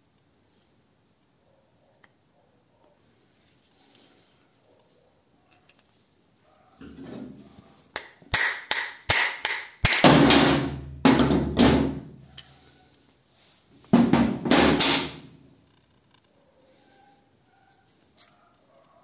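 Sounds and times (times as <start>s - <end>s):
hammer striking metal punch: 8.0s - 12.0s, 14.0s - 15.2s.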